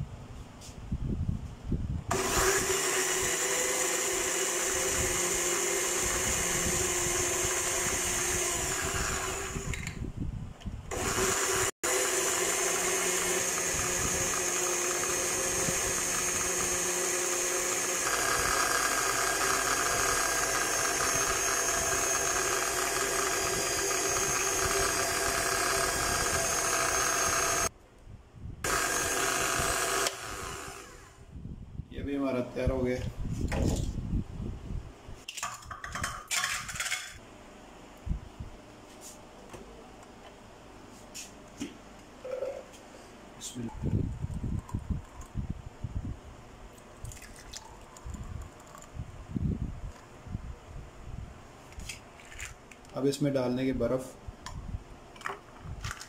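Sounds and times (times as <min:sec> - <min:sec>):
blender running: 0:02.1 - 0:10.0, 0:10.9 - 0:27.7, 0:28.7 - 0:31.2.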